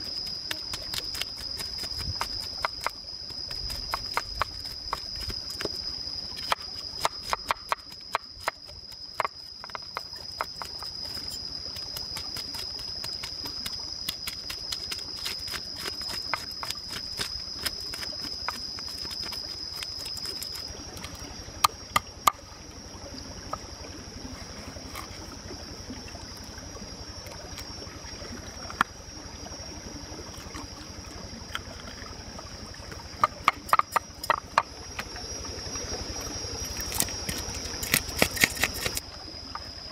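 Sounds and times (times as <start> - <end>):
knife scraping fish scales: 36.8 - 39.0.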